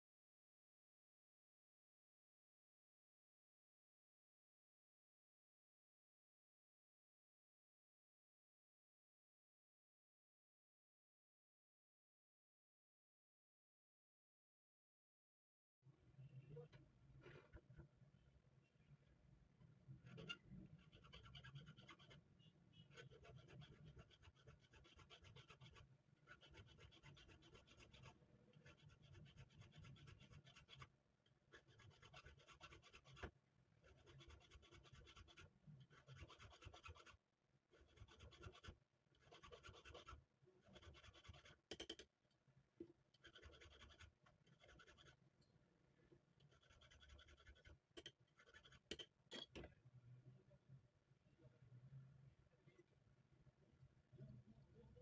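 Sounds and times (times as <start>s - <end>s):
tool scraping metal: 46.6s - 49.7s.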